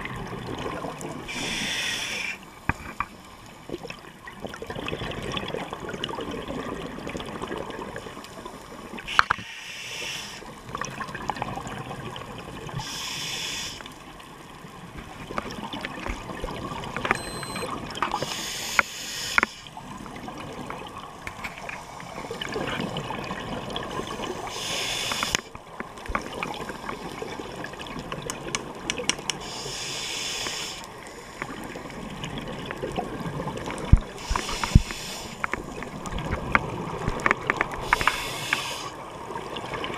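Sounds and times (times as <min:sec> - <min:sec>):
underwater rush: 0:00.0 - 0:39.9
regulator hiss on inhale: 0:01.3 - 0:03.2, 0:09.1 - 0:10.5, 0:12.8 - 0:14.0, 0:18.2 - 0:19.7, 0:23.9 - 0:25.6, 0:29.4 - 0:31.6, 0:34.2 - 0:35.5, 0:37.8 - 0:39.0
small clicks: 0:28.3 - 0:29.4.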